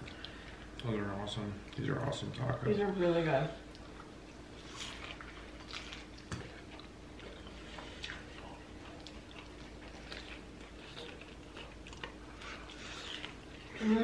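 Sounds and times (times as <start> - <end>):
crunchy chewing: 3.7 - 13.8.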